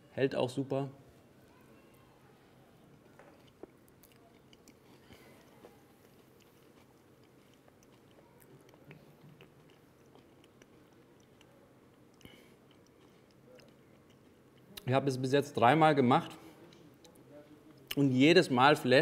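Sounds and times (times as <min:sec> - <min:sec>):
person chewing: 0:02.9 - 0:14.9.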